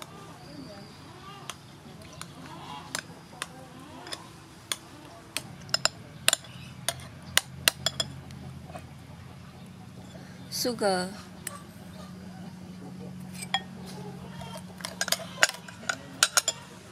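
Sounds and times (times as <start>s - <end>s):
metal spoon clinking ceramic bowl: 5.6s - 7.1s, 7.7s - 8.2s, 14.4s - 16.7s.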